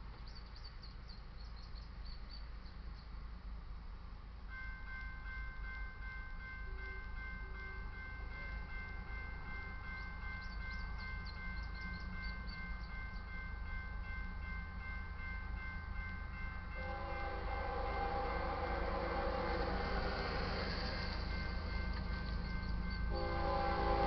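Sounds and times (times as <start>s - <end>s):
railroad crossing bell ringing: 4.5s - 24.0s
locomotive horn chord: 16.7s - 21.1s, 23.1s - 24.0s.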